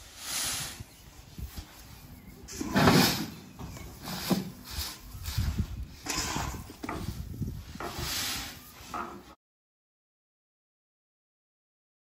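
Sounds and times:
grain pouring and scraping: 0:02.5 - 0:09.4.

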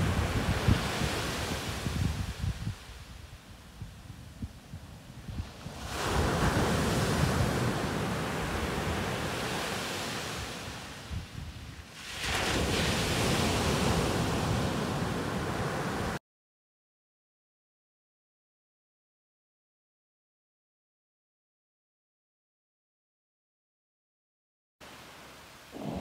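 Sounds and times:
small waves breaking on shore: 0:00.0 - 0:16.2, 0:24.8 - 0:26.0.

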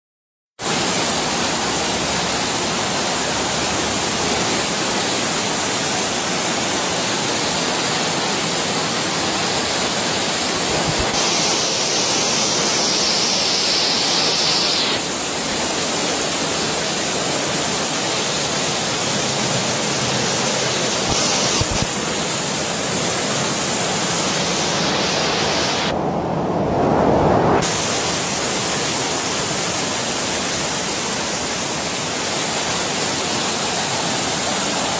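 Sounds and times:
water rushing down stairs: 0:00.6 - 0:25.9, 0:27.6 - 0:34.9.

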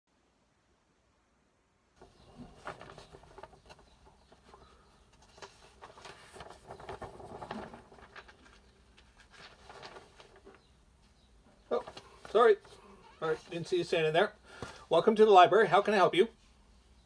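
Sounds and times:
magazine pages rustling: 0:02.0 - 0:14.9.

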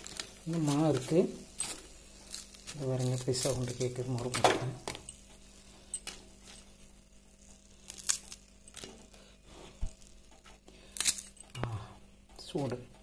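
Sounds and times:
fried fritters crunching: 0:00.0 - 0:04.3, 0:07.4 - 0:11.4.

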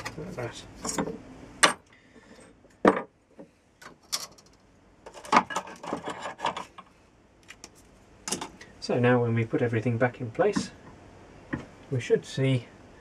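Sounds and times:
tools clattering: 0:00.8 - 0:01.8, 0:03.9 - 0:06.8.

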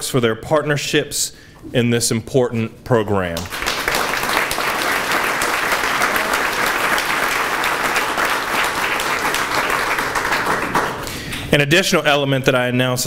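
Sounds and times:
audience applauding: 0:03.4 - 0:11.1.

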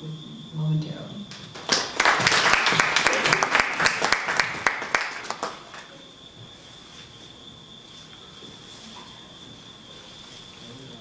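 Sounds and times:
small audience applauding: 0:01.3 - 0:06.1.

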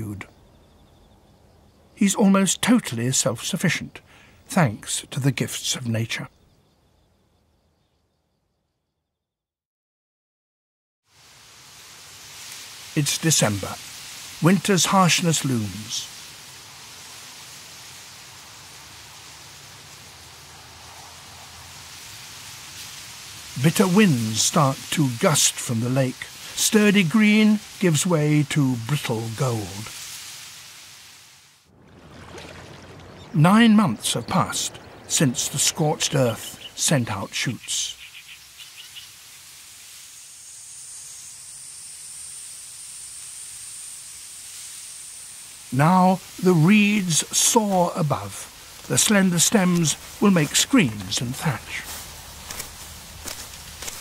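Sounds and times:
insect chorus buzzing: 0:00.0 - 0:09.2, 0:11.1 - 0:54.0
soft hiss: 0:11.1 - 0:54.0
wind rustling reeds: 0:11.1 - 0:54.0.

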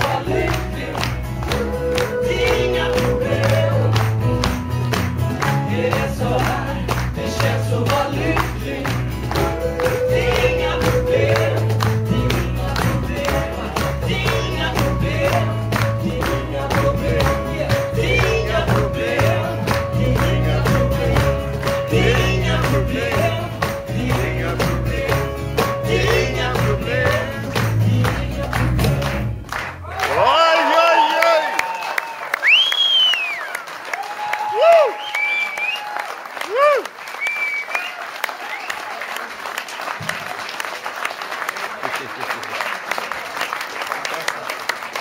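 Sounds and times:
two men singing: 0:00.0 - 0:04.5, 0:05.2 - 0:29.2
cajon beat: 0:00.0 - 0:29.5
acoustic guitar: 0:00.0 - 0:29.9.

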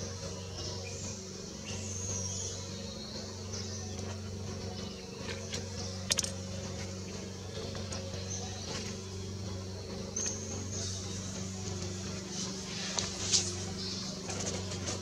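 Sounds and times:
steady low hum: 0:00.0 - 0:15.0
sharp click: 0:06.0 - 0:06.4.

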